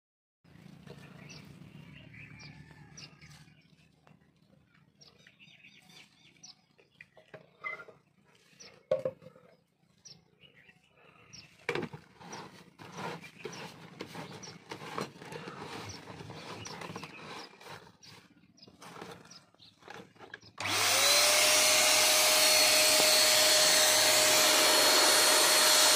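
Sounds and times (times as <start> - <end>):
plastic parts clicking and scraping: 11.6 - 20.7.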